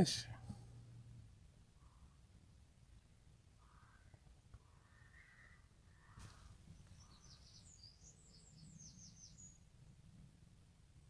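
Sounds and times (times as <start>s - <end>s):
faint low bird calls: 3.4s - 10.4s.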